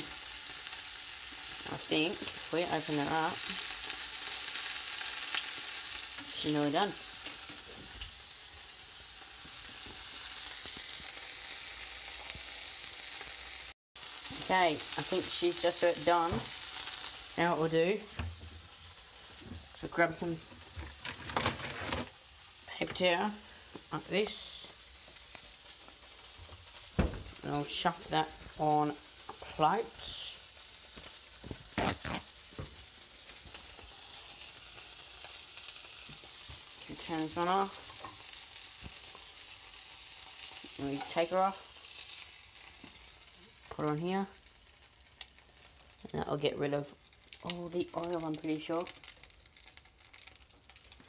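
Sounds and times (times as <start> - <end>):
fish sizzling in hot oil: 0.0 - 51.0
faint oil pops: 26.5 - 27.4.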